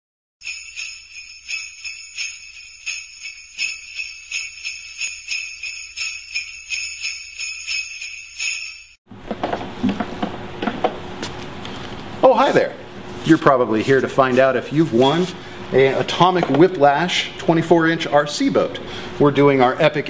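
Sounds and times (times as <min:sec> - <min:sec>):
sleigh bells shaken: 0:00.4 - 0:09.0.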